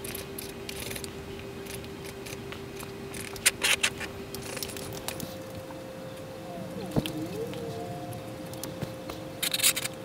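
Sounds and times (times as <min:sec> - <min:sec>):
sharp clicks and light scrapes: 0:00.0 - 0:05.6, 0:08.6 - 0:10.0
steady low hum: 0:00.0 - 0:10.0.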